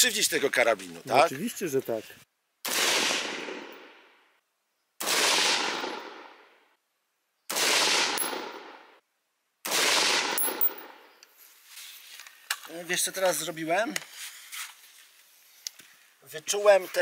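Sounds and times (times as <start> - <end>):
rifle shots: 2.6 - 4.1, 5.0 - 6.5, 7.5 - 9.0, 9.6 - 11.1.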